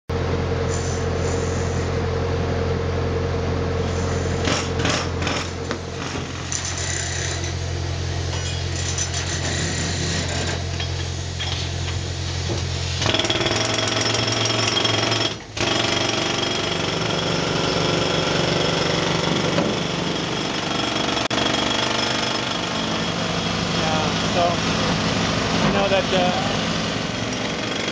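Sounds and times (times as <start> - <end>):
jackhammer hammering rock: 4.4 - 7.5, 13.0 - 24.2, 27.3 - 27.9.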